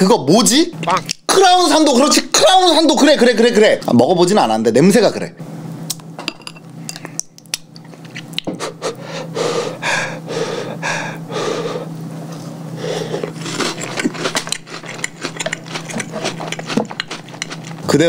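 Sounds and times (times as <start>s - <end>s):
steady low hum: 0.0s - 18.0s
wet chewing with mouth clicks: 7.0s - 8.5s, 13.1s - 17.9s
breathy mouth noises: 12.8s - 16.7s.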